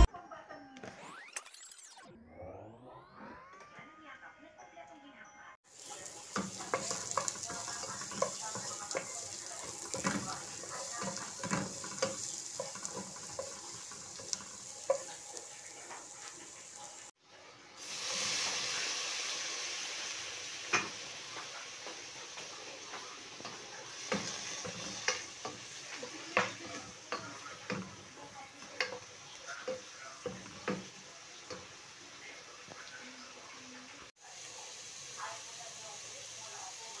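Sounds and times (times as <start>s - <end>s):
chicken frying sizzle: 5.6s - 37.0s
onion and garlic sizzling in oil: 5.6s - 37.0s
spatula scraping and tapping pan: 5.8s - 16.5s, 20.7s - 31.8s.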